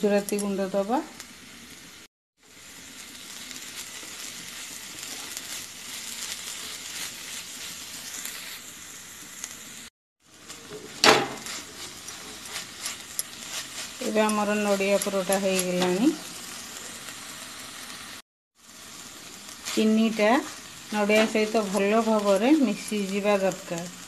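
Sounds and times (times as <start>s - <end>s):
food sizzling in a pan: 0.0s - 24.0s
spatula scraping a pan: 4.9s - 8.6s, 10.6s - 16.0s.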